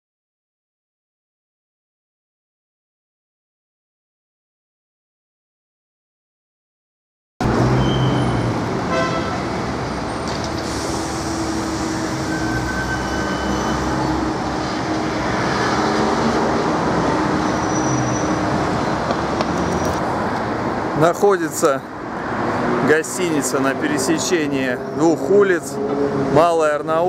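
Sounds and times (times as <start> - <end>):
passing traffic: 7.4 - 27.0
car horn toot: 7.8 - 9.5.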